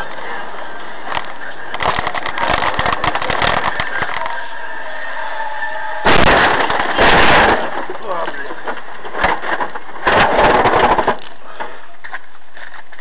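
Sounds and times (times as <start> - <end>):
loud burst of noise: 0.0 - 12.3
road noise: 0.0 - 13.0
rapid knocks and crackles: 1.0 - 4.4, 6.1 - 13.0.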